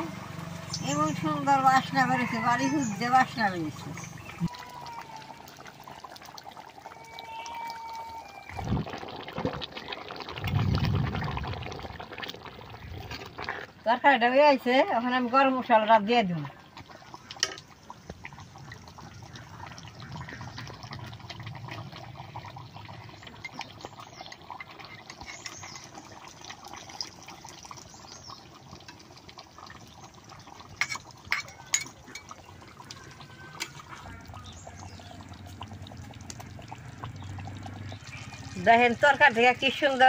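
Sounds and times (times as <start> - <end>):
curry bubbling in a pan: 0.0 - 40.0
metal ladle stirring: 24.3 - 26.1, 30.7 - 34.2.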